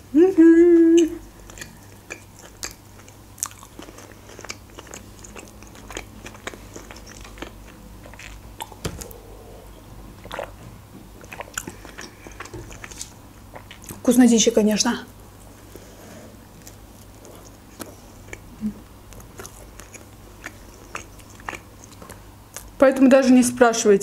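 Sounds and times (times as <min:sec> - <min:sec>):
person chewing close to microphone: 0:01.4 - 0:14.0, 0:16.5 - 0:22.8.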